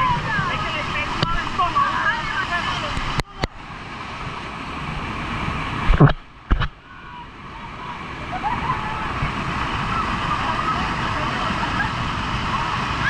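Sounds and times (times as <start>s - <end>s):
floodwater rushing down waterfall: 0.0s - 13.0s.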